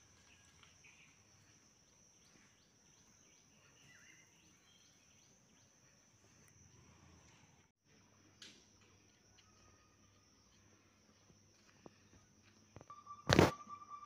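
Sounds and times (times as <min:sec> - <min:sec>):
faint bird chirps: 0:00.0 - 0:07.2, 0:11.8 - 0:14.0.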